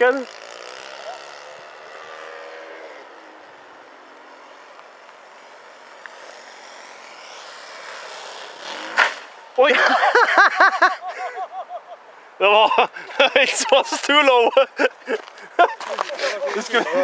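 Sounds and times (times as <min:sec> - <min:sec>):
model aeroplane motor droning: 0:00.0 - 0:09.6.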